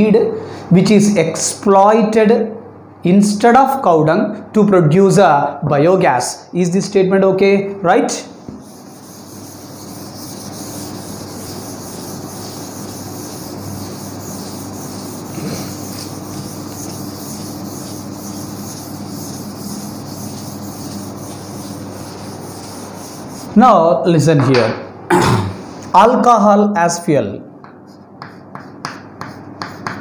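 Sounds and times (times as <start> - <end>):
duster rubbing chalkboard: 8.4 - 23.6, 27.6 - 30.0.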